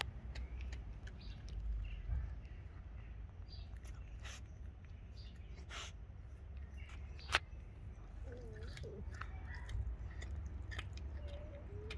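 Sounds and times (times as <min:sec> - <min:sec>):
wet clicks and crunches: 0:00.0 - 0:02.7, 0:06.5 - 0:11.9
cat chewing and biting: 0:06.7 - 0:11.9.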